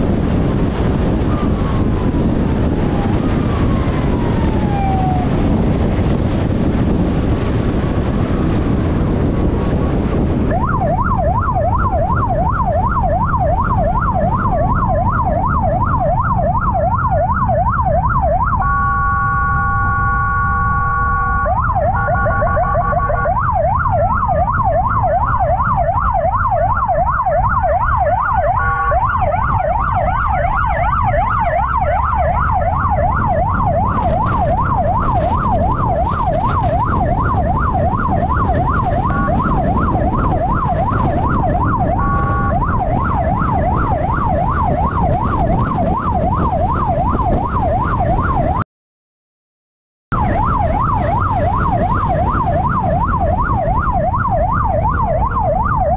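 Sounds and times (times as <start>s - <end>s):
electronic siren yelping: 0.1s - 6.5s, 10.5s - 48.6s, 50.1s - 55.9s
short horn blasts: 28.6s - 29.0s, 42.0s - 42.6s
low motorcycle rumble: 30.0s - 48.0s.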